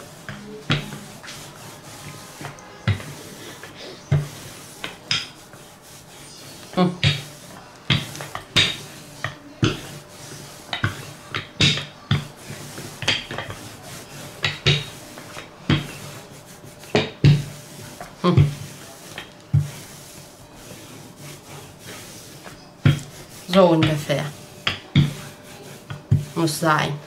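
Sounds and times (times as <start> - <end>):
rolling pin rubbing dough: 0.0 - 27.0
rolling pin knocking on table: 0.2 - 1.4, 2.8 - 3.2, 4.1 - 5.4, 7.0 - 7.3, 7.9 - 10.0, 10.7 - 13.7, 14.4 - 16.1, 16.8 - 19.8, 22.8 - 26.4.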